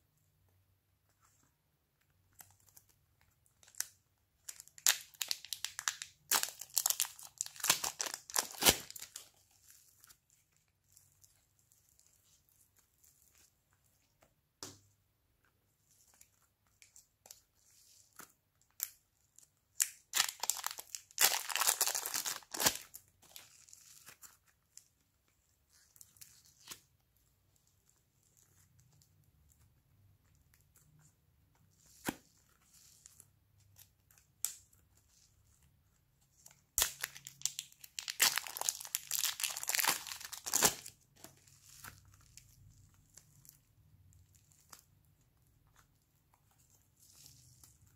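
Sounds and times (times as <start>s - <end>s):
clay tearing and crackling: 4.6s - 12.1s, 19.8s - 25.0s, 36.7s - 43.6s.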